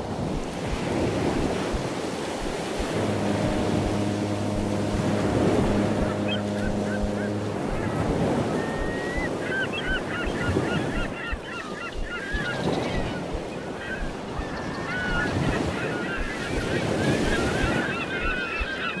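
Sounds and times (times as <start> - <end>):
surf washing on beach: 0.0 - 19.0
wind: 0.0 - 19.0
flock of birds calling: 5.6 - 19.0.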